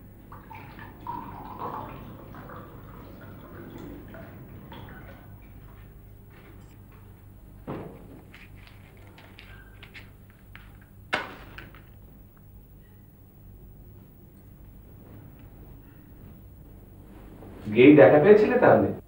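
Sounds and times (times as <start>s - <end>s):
dull thump: 7.6s - 8.3s.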